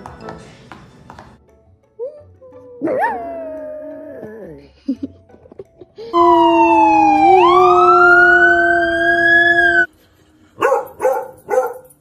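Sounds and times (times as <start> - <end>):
siren wailing: 6.2 - 9.9
dog barking: 10.6 - 12.0.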